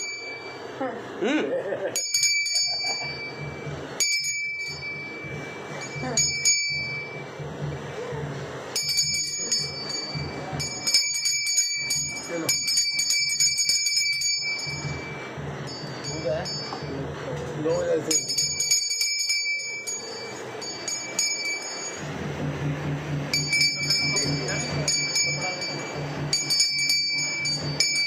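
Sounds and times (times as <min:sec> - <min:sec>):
brass hand bell ringing: 0:02.0 - 0:07.3, 0:08.8 - 0:17.0, 0:18.1 - 0:22.1, 0:23.3 - 0:28.0.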